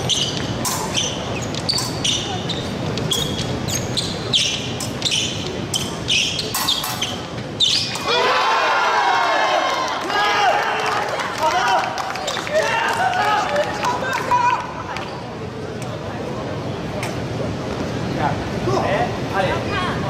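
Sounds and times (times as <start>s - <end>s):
shoes squeaking on floor: 0.0s - 8.1s
murmur of large hall: 0.0s - 20.0s.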